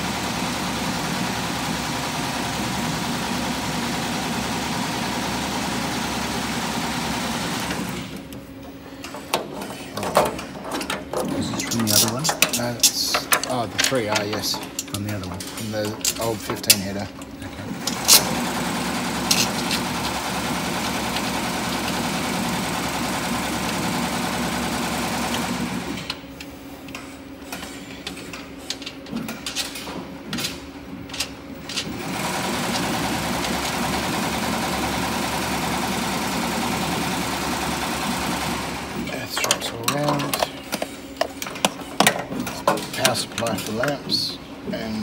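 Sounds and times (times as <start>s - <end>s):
embroidery machine stitching: 0.0s - 8.2s, 17.4s - 26.2s, 31.6s - 40.4s.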